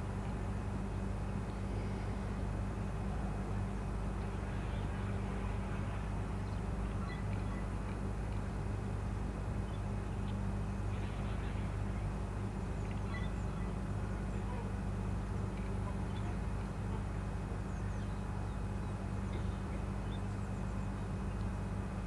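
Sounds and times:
low engine drone: 0:00.0 - 0:22.0
faint bird chirps: 0:12.8 - 0:14.7.

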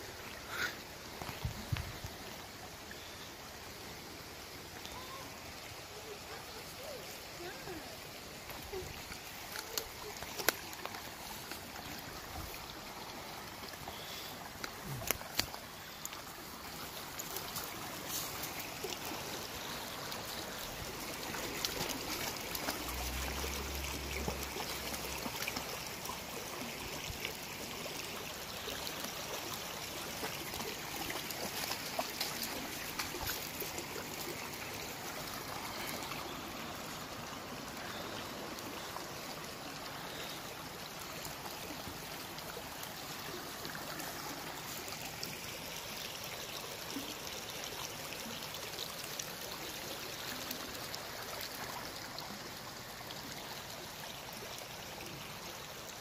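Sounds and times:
creek water trickling over stones: 0:00.0 - 0:56.0.

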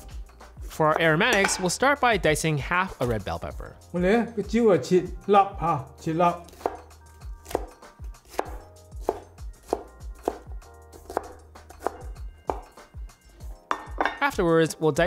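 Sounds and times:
soft background music: 0:00.0 - 0:15.0
cleaver chopping on wooden board: 0:06.5 - 0:12.8.

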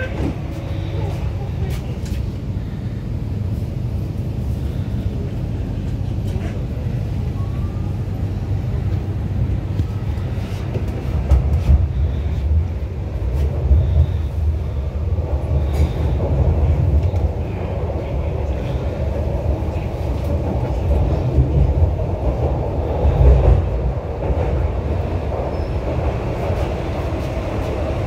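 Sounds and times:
train rumble from inside: 0:00.0 - 0:28.0.

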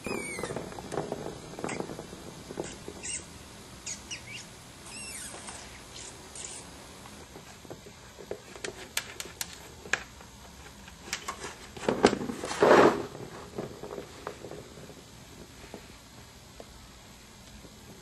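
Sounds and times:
knocking and rattling: 0:00.0 - 0:03.2.

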